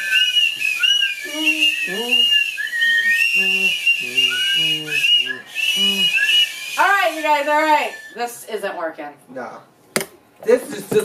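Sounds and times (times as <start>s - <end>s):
party blowers tooting: 0.0s - 8.3s.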